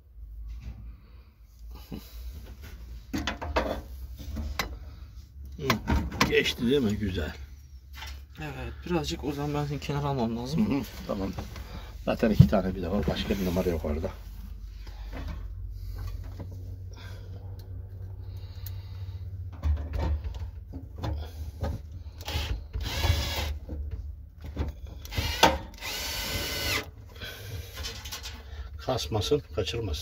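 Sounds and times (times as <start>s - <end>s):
power screwdriver whirring: 22.2s - 23.6s, 25.0s - 26.9s.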